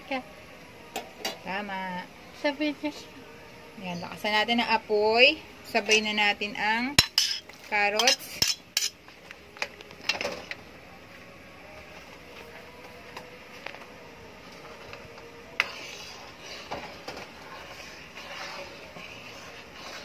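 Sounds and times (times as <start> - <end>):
metal ladle scraping wok: 7.0 - 9.0, 15.5 - 20.0.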